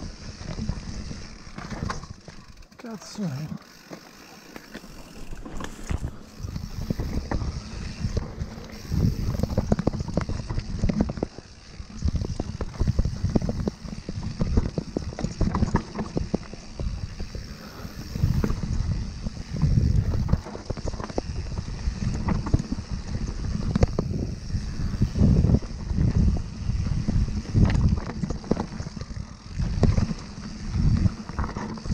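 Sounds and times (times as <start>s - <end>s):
bike clattering and rattling: 0.0s - 31.9s
tyres rolling over dirt and stones: 0.4s - 24.1s
wind buffeting microphone: 5.2s - 31.9s.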